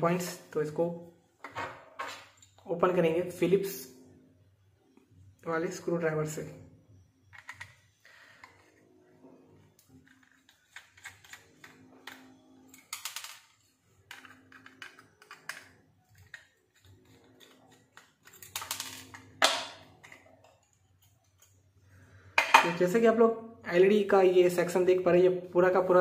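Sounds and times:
screwdriver ticking and scraping: 10.0 - 13.2.

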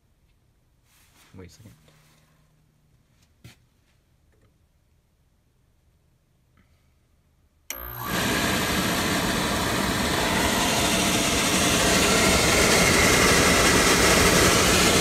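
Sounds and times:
oil burner blower fan whirring: 7.7 - 15.0.

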